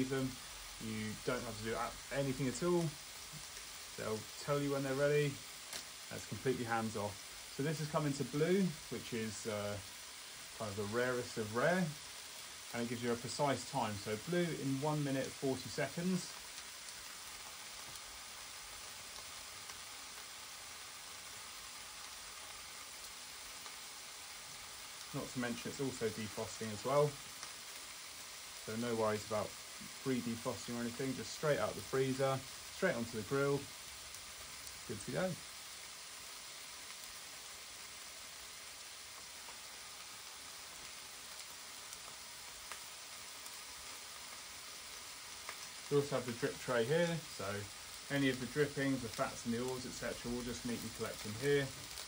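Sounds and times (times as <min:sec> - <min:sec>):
meat sizzling in contact grill: 0:00.0 - 0:52.0
small pops: 0:05.6 - 0:06.0.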